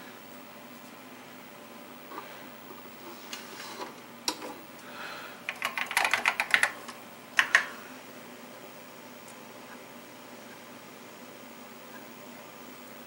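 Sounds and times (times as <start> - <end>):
computer keyboard typing: 5.5 - 7.7.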